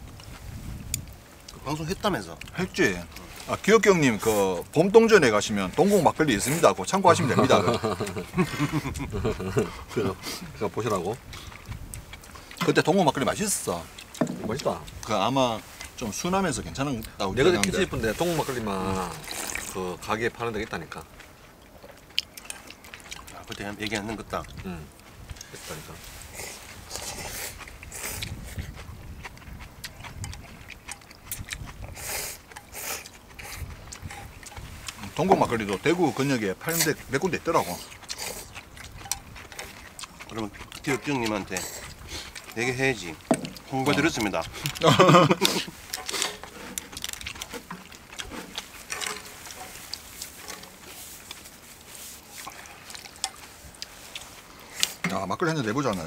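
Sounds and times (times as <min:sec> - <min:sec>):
people slurping noodles: 0:01.8 - 0:56.0
chopsticks clicking on bowls: 0:37.8 - 0:56.0
utensils clicking on dishes: 0:43.3 - 0:51.4.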